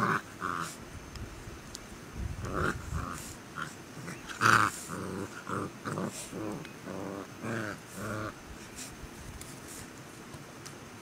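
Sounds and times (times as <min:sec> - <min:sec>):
dog growling: 0:00.0 - 0:00.8, 0:02.4 - 0:08.8.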